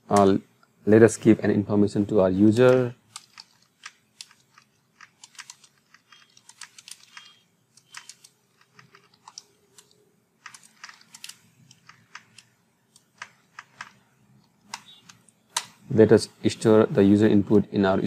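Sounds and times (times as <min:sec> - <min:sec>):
keyboard typing: 0:02.7 - 0:15.8.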